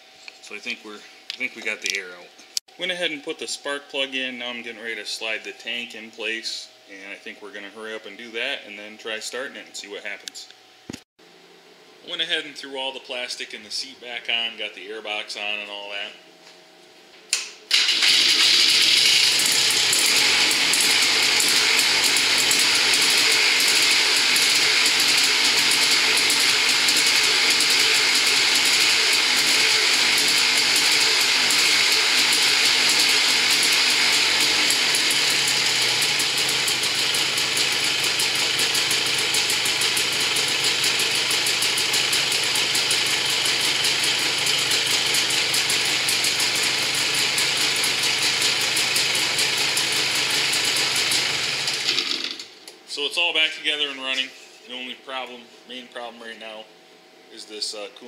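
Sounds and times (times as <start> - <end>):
two-stroke engine idling: 17.8 - 52.0.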